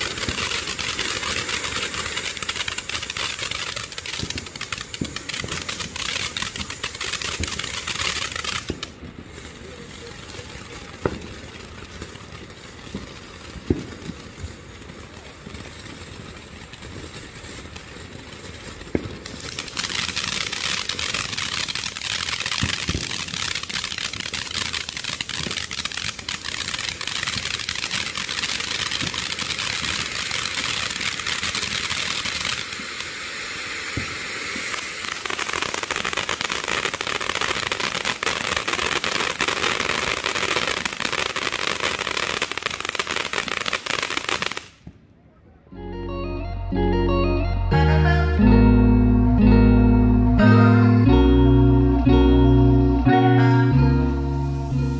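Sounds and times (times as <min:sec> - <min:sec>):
firework fountain hissing: 0:00.0 - 0:45.0.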